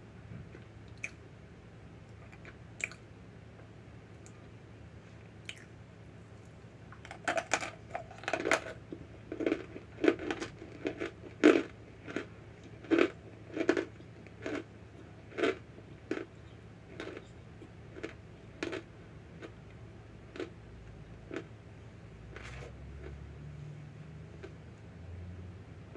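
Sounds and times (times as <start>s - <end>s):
crisp chewing crunches: 2.2s - 3.0s, 7.1s - 19.7s, 20.3s - 20.6s.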